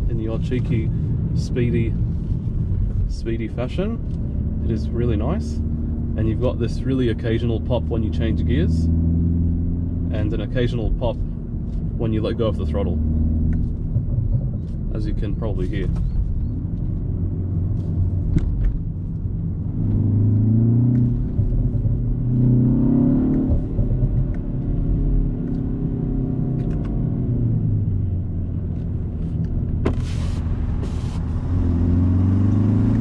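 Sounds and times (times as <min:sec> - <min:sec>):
car engine revving: 0:00.0 - 0:14.0, 0:16.6 - 0:33.0
exhaust pops: 0:28.8 - 0:31.6.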